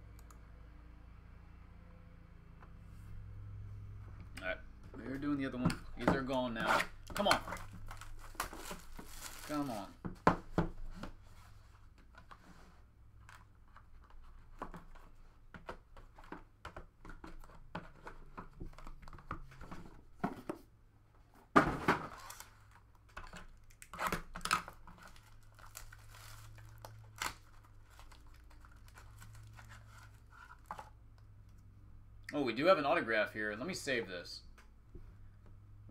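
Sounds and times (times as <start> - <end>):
plastic wrapping ripping: 6.6 - 9.9, 23.6 - 30.0
plastic wrapping crinkling: 7.0 - 9.9, 22.2 - 30.7.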